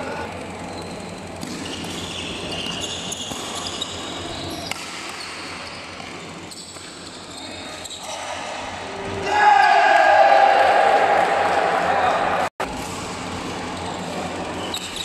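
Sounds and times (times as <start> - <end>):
echoing sports hall din: 0.0 - 15.0
shoes squeaking on court floor: 0.1 - 9.2, 12.7 - 15.0
racket striking shuttlecock: 1.4 - 2.1, 4.7 - 5.4.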